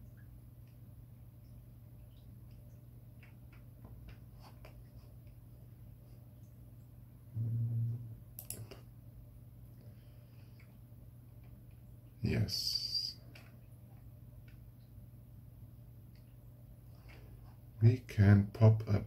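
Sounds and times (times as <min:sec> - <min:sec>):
low electrical hum: 0:00.0 - 0:19.0
man humming hmm: 0:07.3 - 0:08.2
computer mouse clicks: 0:08.4 - 0:08.8
sharp click: 0:08.4 - 0:08.8.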